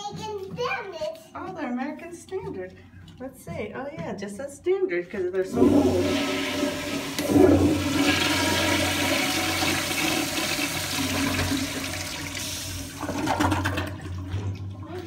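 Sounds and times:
toilet flushing: 0:05.5 - 0:15.0.

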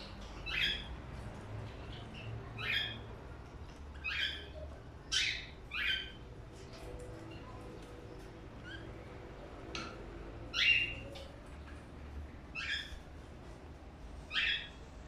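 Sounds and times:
budgerigar calls: 0:14.3 - 0:14.7.

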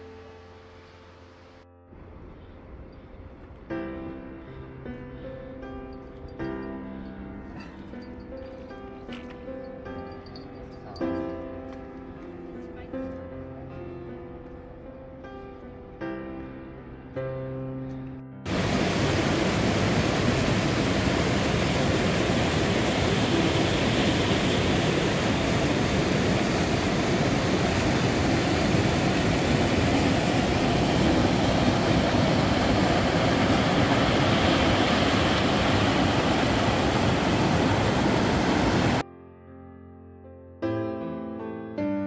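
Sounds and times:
stream rushing over boulders: 0:18.5 - 0:39.0.

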